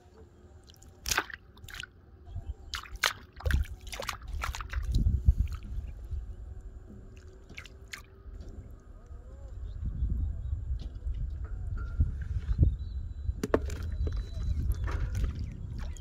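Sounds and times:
splashing in shallow water: 0.6s - 2.0s, 2.7s - 5.8s, 7.1s - 8.8s, 13.5s - 16.0s.

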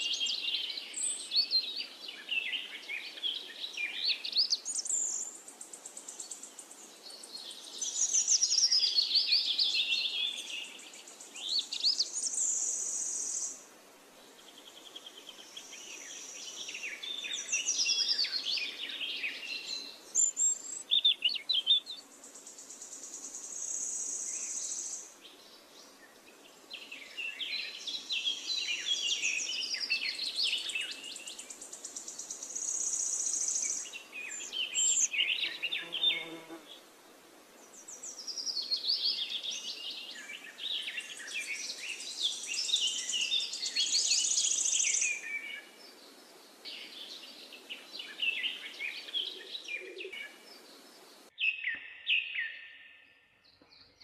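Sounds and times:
birdsong chirps and trills: 0.0s - 13.6s, 14.3s - 36.9s, 37.6s - 54.0s.

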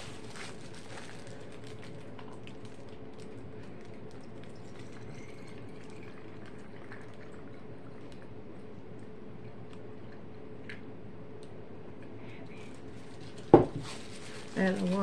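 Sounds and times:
water trickling into a bottle: 3.6s - 8.3s.

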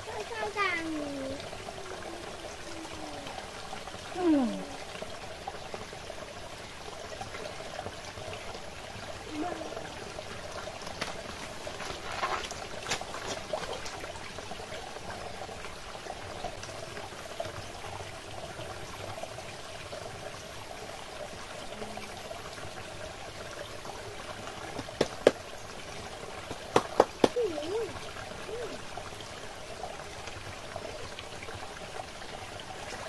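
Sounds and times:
stream trickling over rocks: 0.0s - 33.0s.

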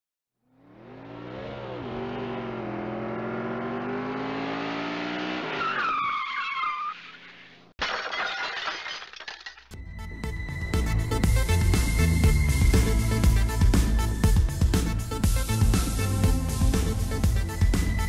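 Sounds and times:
car engine revving: 0.4s - 5.6s
tyres squealing: 5.5s - 7.5s
car crash: 5.6s - 9.8s.

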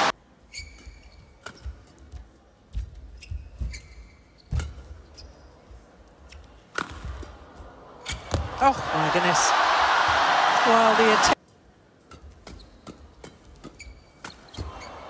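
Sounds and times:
shoes squeaking on court: 0.5s - 2.1s, 2.8s - 7.0s, 12.4s - 15.0s.

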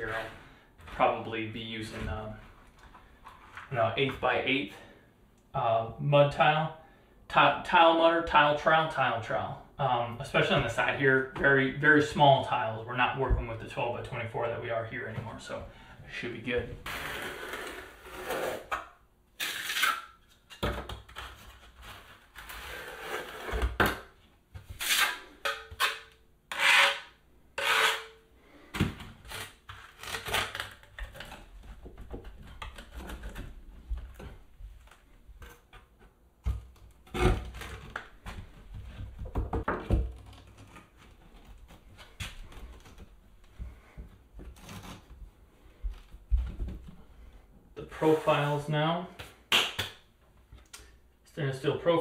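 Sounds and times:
trowel scraping mortar: 16.9s - 18.8s, 24.8s - 28.2s.

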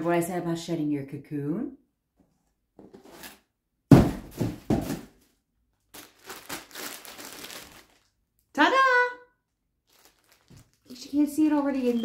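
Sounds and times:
plastic and paper rustling: 5.8s - 8.2s, 9.8s - 12.0s.

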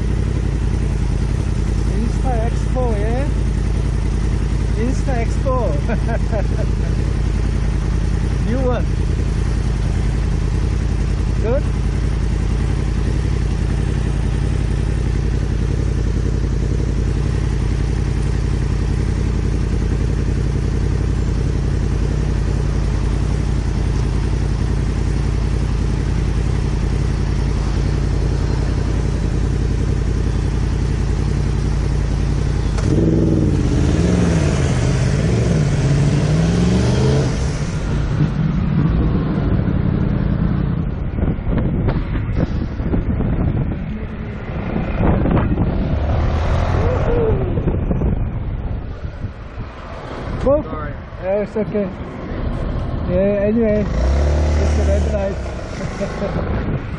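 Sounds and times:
scooter engine running: 0.0s - 49.5s, 50.6s - 56.9s
wind on microphone: 38.7s - 50.5s, 55.4s - 56.9s.

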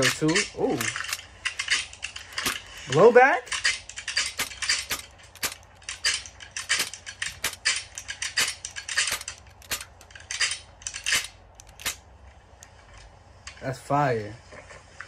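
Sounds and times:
sharp metallic pistol clicks: 4.0s - 12.0s.

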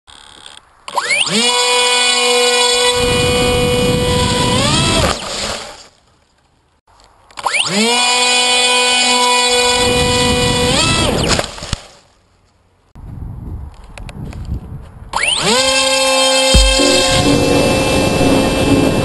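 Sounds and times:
model plane motor whining: 0.1s - 5.8s, 7.4s - 11.2s, 15.2s - 19.0s.

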